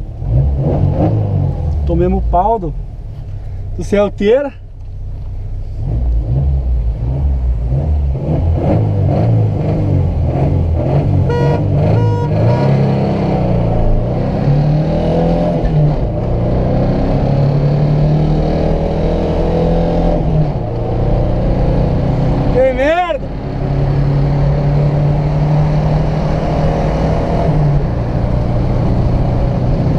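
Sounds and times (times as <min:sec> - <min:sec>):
car engine revving: 0:00.0 - 0:04.0, 0:05.0 - 0:29.9
car horn beeping: 0:11.2 - 0:13.0.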